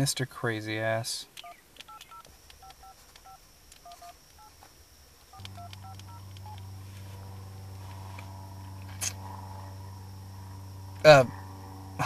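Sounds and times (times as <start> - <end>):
steady low hum: 0.0 - 12.0
key clicks: 1.4 - 4.5, 5.3 - 6.7
phone keypad beeps: 1.4 - 4.5, 5.3 - 6.6.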